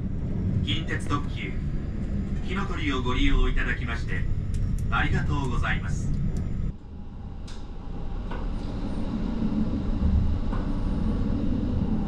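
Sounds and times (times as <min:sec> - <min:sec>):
train rumbling in tunnel: 0:00.0 - 0:12.0
faint clicks: 0:04.4 - 0:06.6, 0:07.4 - 0:08.7.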